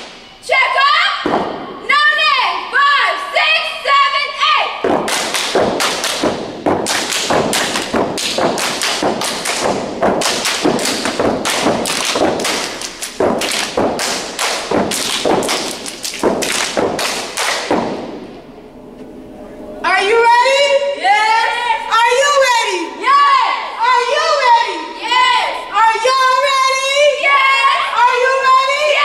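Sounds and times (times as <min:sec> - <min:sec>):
hand slaps and claps: 0:05.0 - 0:18.2.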